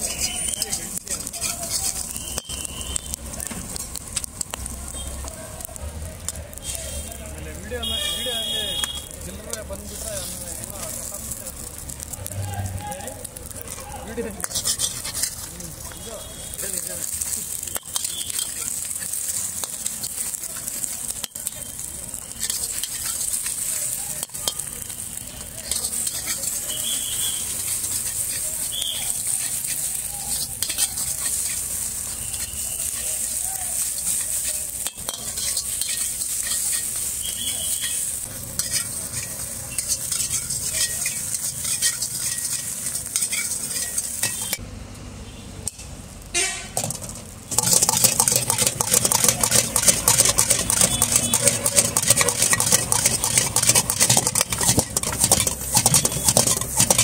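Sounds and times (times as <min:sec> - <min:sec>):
metal spatula clacking against pan: 0:00.0 - 0:03.2, 0:14.4 - 0:15.5, 0:17.7 - 0:21.8, 0:22.4 - 0:24.9, 0:25.6 - 0:26.9, 0:27.5 - 0:31.7, 0:34.0 - 0:44.6, 0:47.5 - 0:57.0
spatula scraping wok: 0:00.0 - 0:05.3, 0:07.8 - 0:12.2, 0:13.2 - 0:44.6, 0:46.8 - 0:57.0
egg sizzling in a wok: 0:00.0 - 0:44.6, 0:45.6 - 0:57.0.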